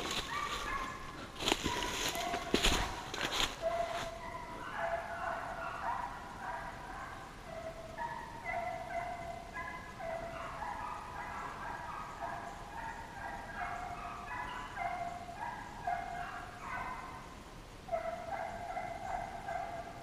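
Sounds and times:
hounds baying: 0.0 - 20.0.

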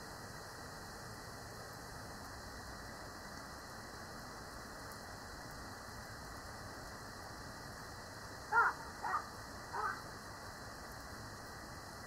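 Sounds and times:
steady rain falling: 0.0 - 12.0
short bird calls: 8.5 - 10.1.

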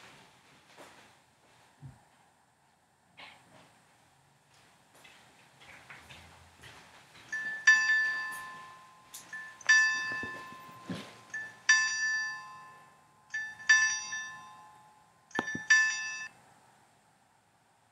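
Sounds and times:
two-note electronic chime: 7.3 - 16.3.

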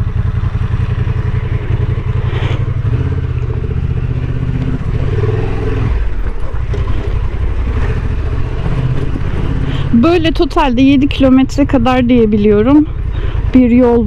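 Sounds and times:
motorcycle engine running: 0.0 - 14.0.

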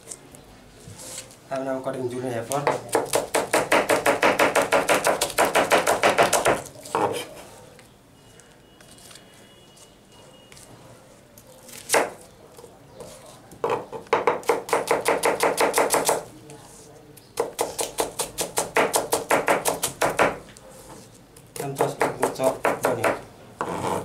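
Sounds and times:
knife chopping on cutting board: 21.6 - 23.8.

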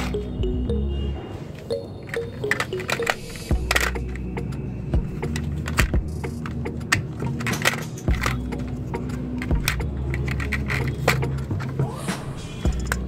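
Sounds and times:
background music with low notes: 0.0 - 13.0
toy truck clicking on concrete: 5.2 - 11.8.

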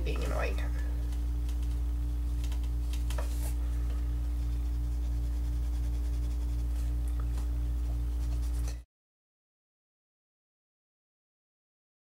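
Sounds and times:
low throbbing hum: 0.0 - 8.8.

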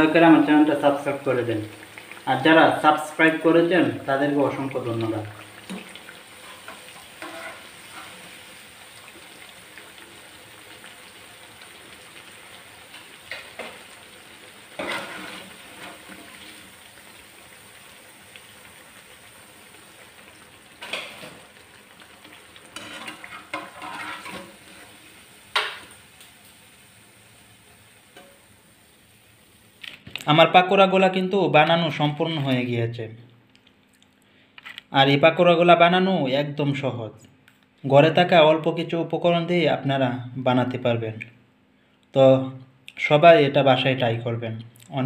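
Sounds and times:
food sizzling in hot oil: 0.0 - 30.2
skimmer scraping against pan: 5.6 - 8.4, 14.8 - 16.4, 22.7 - 25.8.

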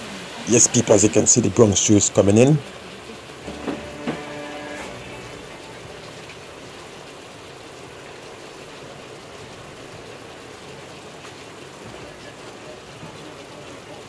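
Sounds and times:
chicken sizzling in a pot: 3.4 - 6.7.

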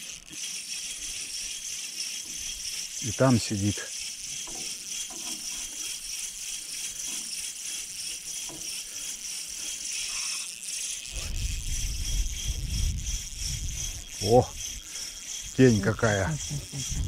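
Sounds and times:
insects chirping: 0.0 - 17.0
low rumble on microphone: 11.1 - 14.6.

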